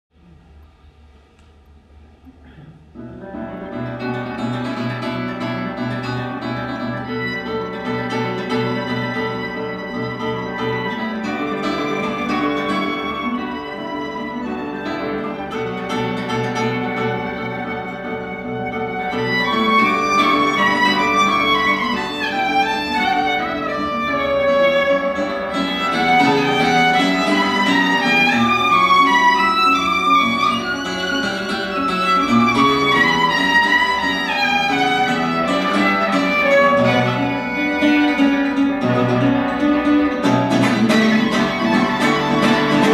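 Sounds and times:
plucked acoustic guitar: 2.9 - 42.9
violin melody: 3.1 - 42.9.

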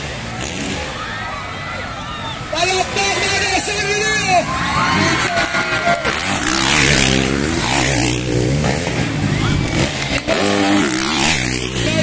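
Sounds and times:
motocross bikes revving past: 0.0 - 12.0.

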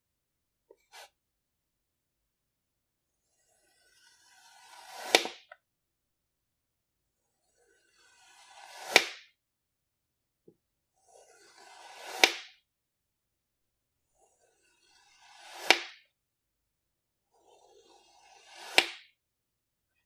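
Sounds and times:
blade tapping wooden tabletop: 12.1 - 12.5, 15.5 - 16.0, 18.5 - 19.1.

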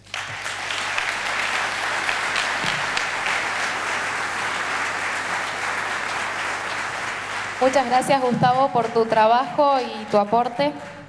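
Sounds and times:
audience applauding: 0.0 - 11.0.

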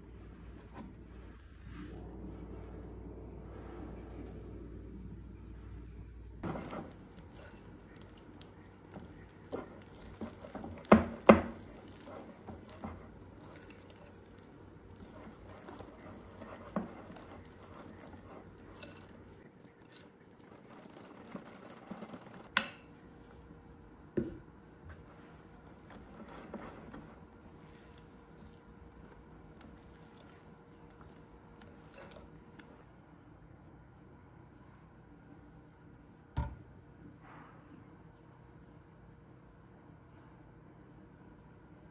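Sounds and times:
whisk stirring batter: 5.8 - 23.4, 24.9 - 32.8
whisk clinking against glass: 6.5 - 23.0, 31.0 - 32.8.

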